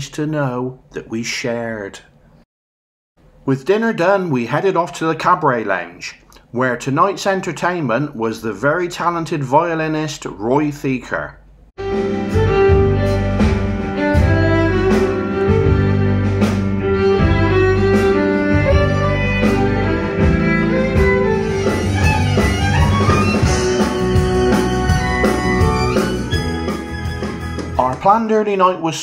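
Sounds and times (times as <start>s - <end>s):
violin melody: 11.8s - 27.8s
backing band: 11.8s - 28.0s
drum beat: 11.8s - 28.0s.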